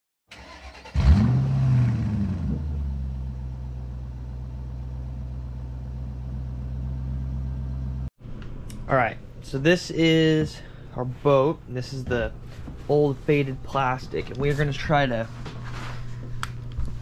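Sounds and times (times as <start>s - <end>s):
car engine starting and idling: 0.3s - 8.1s.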